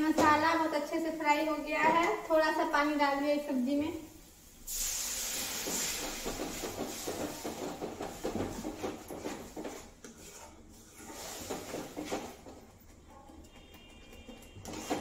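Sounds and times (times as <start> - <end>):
food sizzling in a pan: 4.0 - 7.8
spatula scraping and tapping pan: 5.6 - 15.0.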